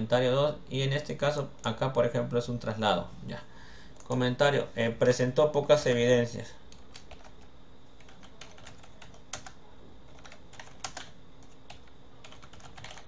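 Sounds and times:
keyboard typing: 6.7s - 7.4s, 8.0s - 13.0s.

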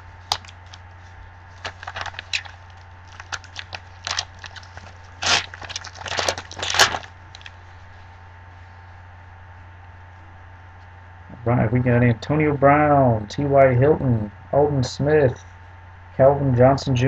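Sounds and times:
foil wrapper crinkling and tearing: 0.2s - 0.8s, 1.5s - 7.6s.

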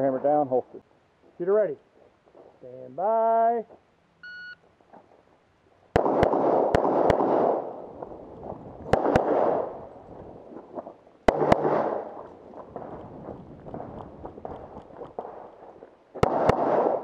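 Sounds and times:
pistol shots with echo: 6.0s - 7.8s, 8.9s - 9.8s, 11.3s - 12.2s, 16.2s - 17.0s.

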